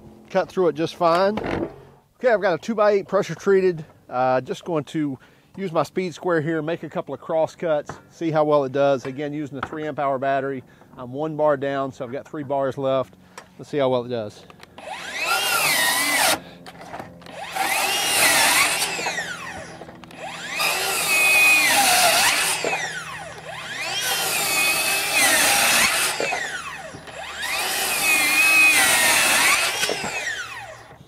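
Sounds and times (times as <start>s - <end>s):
circular saw cutting wood: 14.8s - 31.0s.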